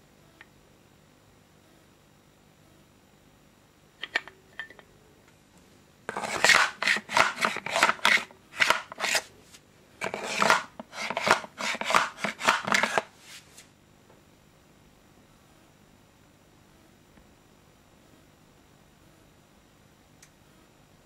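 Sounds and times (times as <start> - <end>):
magazine scrapes and clicks: 6.1 - 9.3, 10.0 - 13.1.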